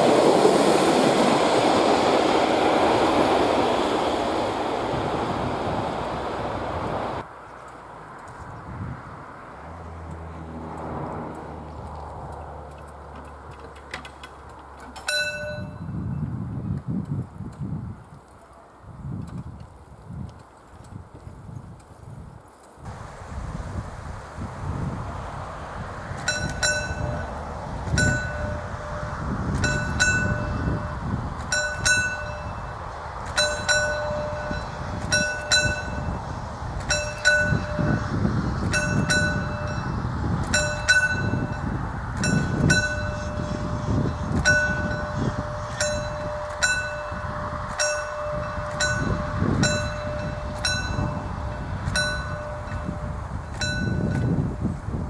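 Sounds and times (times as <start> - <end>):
crossing barriers lowering: 9.8 - 15.9, 22.6 - 54.4
level crossing warning bell: 15.0 - 16.1, 26.2 - 36.2, 36.9 - 54.6.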